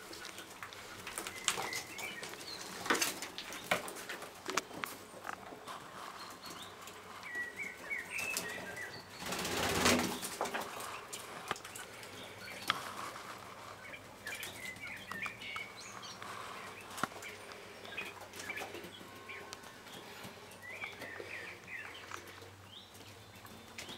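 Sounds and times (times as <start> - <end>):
soft chirping calls: 4.4 - 23.9
quails flapping wings: 8.2 - 23.1.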